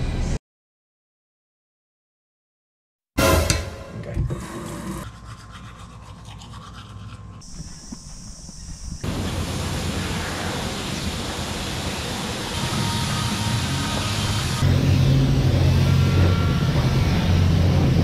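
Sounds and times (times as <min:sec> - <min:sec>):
toothbrush scrubbing teeth: 0:05.0 - 0:08.2.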